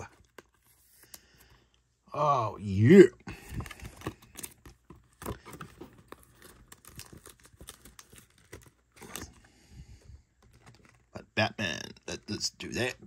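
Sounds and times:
card rustling and clicking in fingers: 0:00.0 - 0:01.8, 0:03.3 - 0:09.5, 0:10.2 - 0:11.1.

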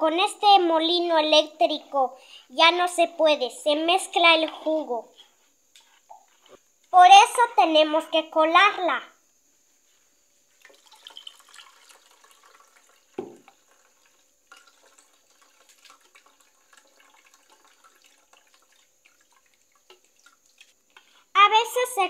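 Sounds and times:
liquid straining into a pot: 0:10.5 - 0:21.0
wet sloshing and dripping: 0:10.5 - 0:21.1.

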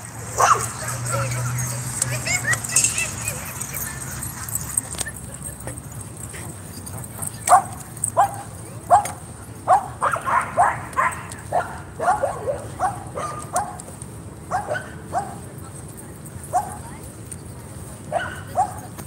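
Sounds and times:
dog barking: 0:00.4 - 0:00.9, 0:07.5 - 0:13.8, 0:14.5 - 0:15.4, 0:18.1 - 0:18.9.

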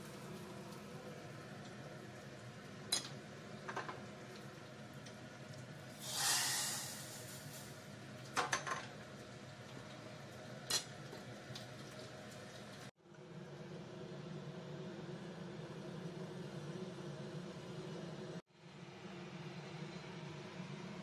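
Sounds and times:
hot oil sizzling: 0:00.0 - 0:12.9.

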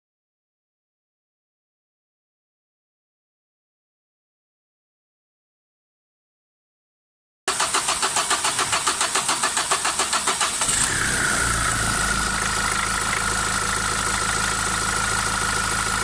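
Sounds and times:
diesel engine cranking: 0:07.5 - 0:16.0
diesel engine idling: 0:07.5 - 0:16.0.

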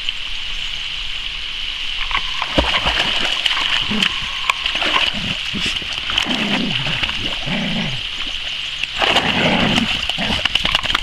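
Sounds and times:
water splashing: 0:02.0 - 0:11.0
dogs growling: 0:03.8 - 0:08.3, 0:09.0 - 0:10.6.

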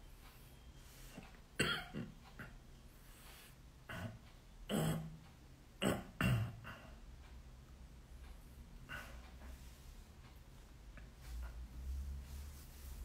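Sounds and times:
man coughing: 0:01.6 - 0:02.5
man clearing his throat: 0:01.6 - 0:02.6, 0:03.9 - 0:05.2, 0:05.8 - 0:06.9.

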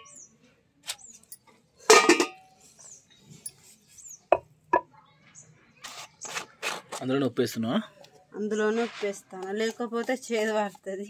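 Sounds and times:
steel bowl clinking: 0:01.9 - 0:02.5.

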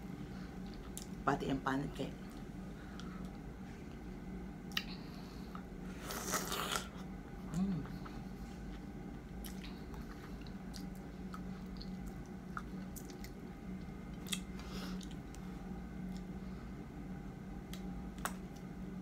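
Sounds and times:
short low hum: 0:01.8 - 0:19.0
quiet chewing: 0:04.7 - 0:16.4
crunchy wet bite: 0:14.2 - 0:15.4.

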